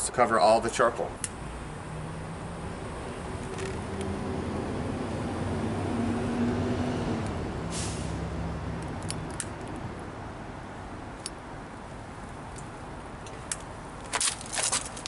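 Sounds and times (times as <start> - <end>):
vehicle engine droning: 1.2 - 11.2
short hiss: 7.7 - 8.2.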